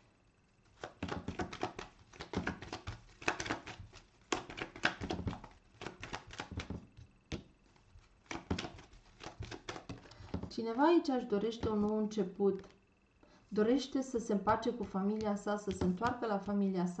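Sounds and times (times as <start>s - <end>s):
cards being shuffled: 0.6s - 10.5s, 14.8s - 16.5s.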